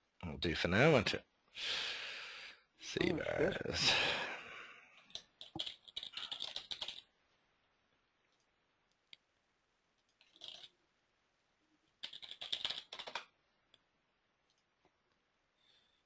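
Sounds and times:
computer keyboard typing: 5.1s - 7.1s, 12.0s - 13.4s.

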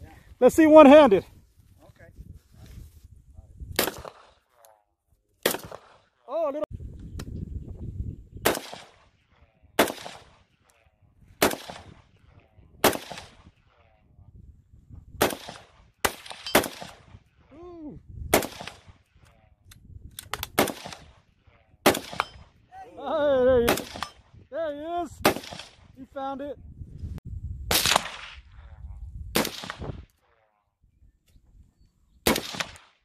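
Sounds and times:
man calling out: 0.4s - 1.2s, 17.5s - 18.0s, 22.7s - 23.7s, 24.5s - 25.2s
rifle shots with echo: 3.8s - 4.4s, 5.4s - 6.2s, 8.4s - 10.8s, 11.4s - 14.0s, 15.2s - 17.4s, 18.3s - 19.1s, 20.4s - 22.6s, 23.6s - 24.3s, 25.2s - 25.9s, 27.7s - 28.7s, 29.3s - 30.4s, 32.2s - 33.0s.

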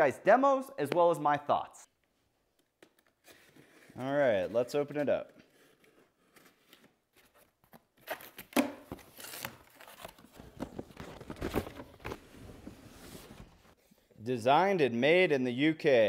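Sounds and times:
cardboard rustling and scraping: 9.0s - 13.8s.

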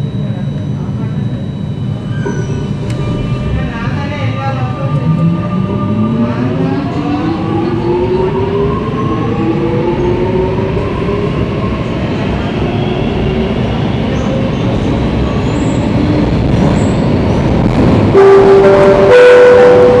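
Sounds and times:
traction motors whining: 1.1s - 12.1s
wheels rumbling on track: 2.2s - 20.0s.

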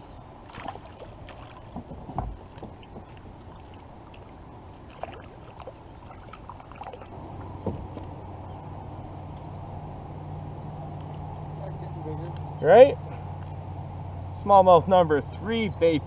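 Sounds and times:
knocks against kayak hull: 1.7s - 3.2s
low thump: 7.6s - 8.1s.

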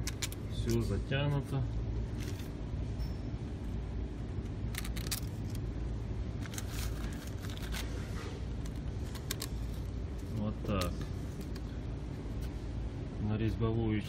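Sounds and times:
low workshop hum: 0.0s - 14.0s
plastic bags rustling: 6.4s - 10.5s.

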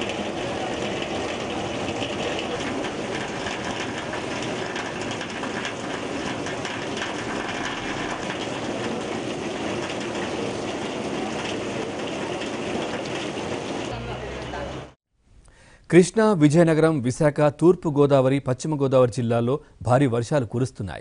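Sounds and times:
heavy water rushing: 0.0s - 15.0s.

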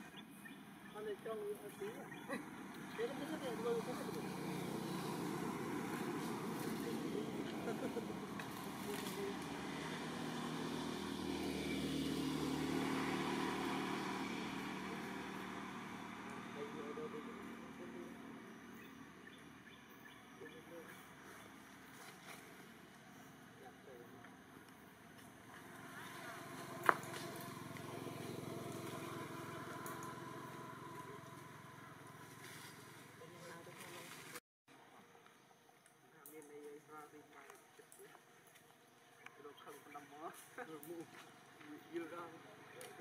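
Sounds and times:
engine humming: 0.0s - 19.9s, 20.5s - 34.4s.

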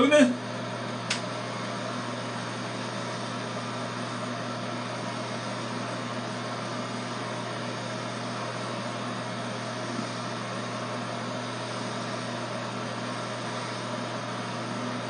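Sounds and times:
electric hair clippers buzzing: 1.0s - 15.0s.

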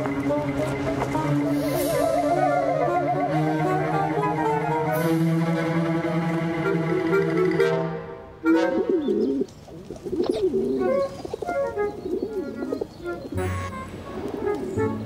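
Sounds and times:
light background music: 0.0s - 9.4s, 10.4s - 15.0s
pigeons cooing: 8.4s - 15.0s.

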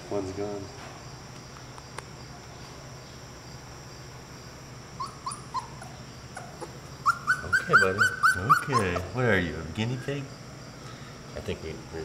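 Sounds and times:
faint steady hum: 0.0s - 12.0s
puppy whimpering: 5.0s - 9.2s.

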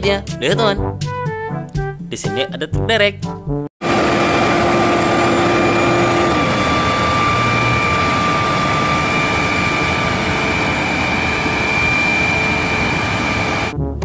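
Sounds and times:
crane engine running: 3.8s - 13.7s
high steady whine: 3.8s - 13.7s.

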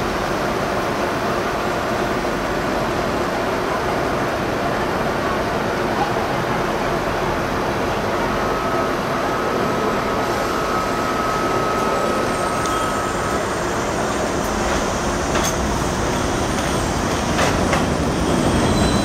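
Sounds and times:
subway train running: 0.0s - 19.0s
thin high tone: 8.4s - 13.8s.

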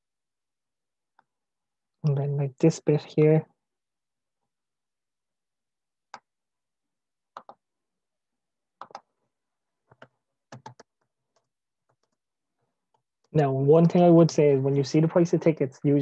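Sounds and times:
laptop keyboard clicks: 8.8s - 9.1s
mouse clicks: 8.8s - 9.1s.

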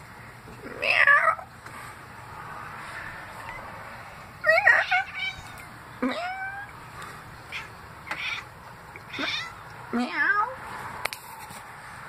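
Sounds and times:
cat chirping meows: 3.4s - 3.7s, 4.4s - 6.8s, 7.5s - 10.6s.

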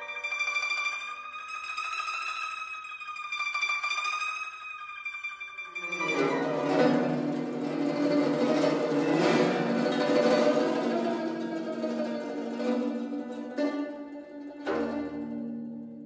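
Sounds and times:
plucked zither strings: 5.7s - 16.0s.

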